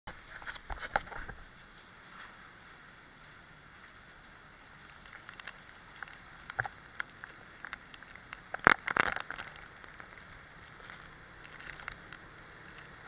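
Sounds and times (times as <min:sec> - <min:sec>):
driving rain: 0:00.1 - 0:13.0
hurricane wind: 0:00.1 - 0:13.0
sharp ticks and knocks: 0:04.9 - 0:13.0.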